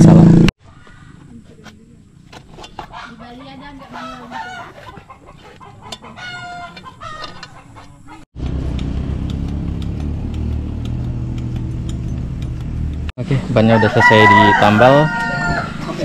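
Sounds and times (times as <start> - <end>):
chickens clucking: 2.8 - 8.2
rooster crowing: 6.0 - 7.4, 13.6 - 16.0.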